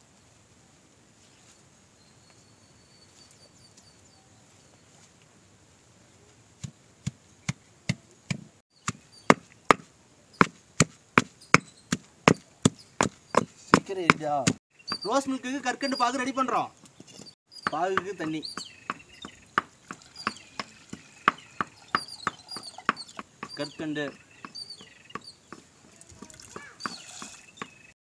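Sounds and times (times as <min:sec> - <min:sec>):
stone pestle pounding in mortar: 0:08.3 - 0:15.1, 0:17.6 - 0:23.8.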